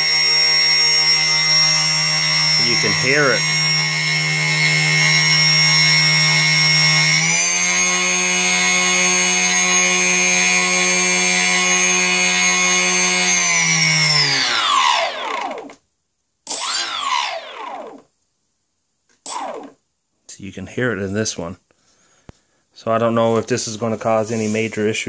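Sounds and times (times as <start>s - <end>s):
electric motor whine: 0.0s - 15.8s, 16.5s - 18.0s, 19.3s - 19.8s.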